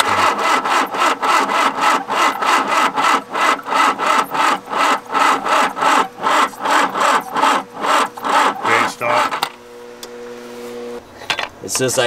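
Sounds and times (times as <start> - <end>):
diesel engine cranking: 0.0 - 9.6.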